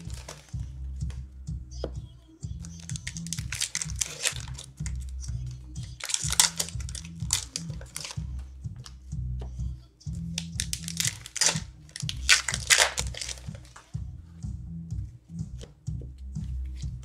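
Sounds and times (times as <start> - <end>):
foil wrappers crinkling and tearing: 0.0 - 0.6, 2.7 - 5.0, 5.8 - 8.2, 10.4 - 13.8
background music with bass line: 0.0 - 17.0.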